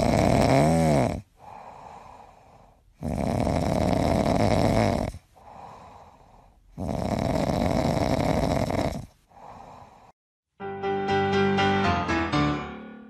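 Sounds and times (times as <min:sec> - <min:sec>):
dog snoring: 0:00.0 - 0:10.1
dog breathing: 0:01.3 - 0:10.2.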